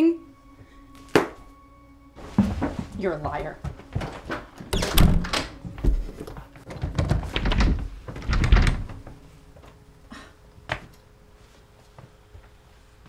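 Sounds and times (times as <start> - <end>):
heavy indoor thuds: 2.2 - 6.2
door thudding shut: 4.7 - 5.6.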